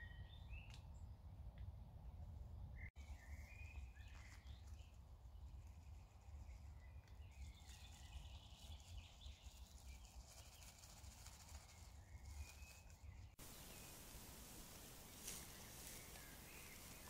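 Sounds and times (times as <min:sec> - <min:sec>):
distant birdsong: 0:06.4 - 0:17.0
low woodland rumble: 0:13.4 - 0:17.0.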